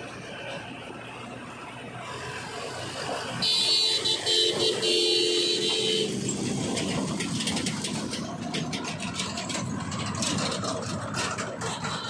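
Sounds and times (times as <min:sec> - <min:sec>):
diesel engines running: 0:00.0 - 0:12.0
rattling clatter: 0:06.1 - 0:12.0.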